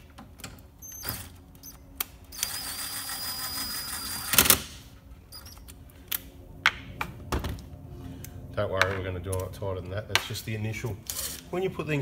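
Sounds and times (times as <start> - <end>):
impact driver motor whine: 2.4 - 4.6.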